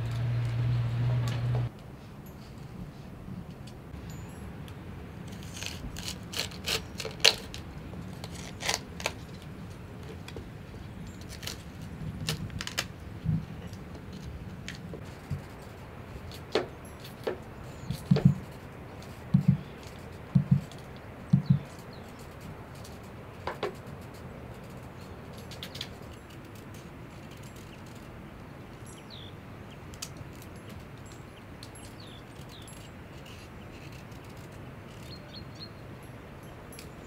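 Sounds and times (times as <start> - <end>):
cauliflower stalks snapping: 11.2 - 12.9
knife knocking on wooden board: 19.4 - 19.6, 20.4 - 20.7, 21.3 - 21.6.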